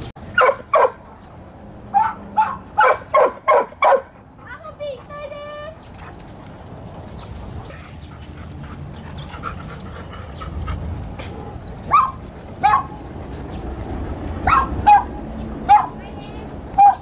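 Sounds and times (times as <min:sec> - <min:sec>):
dog yipping: 0:00.3 - 0:01.0, 0:01.9 - 0:04.2, 0:11.9 - 0:13.0, 0:14.4 - 0:16.0, 0:16.8 - 0:17.0.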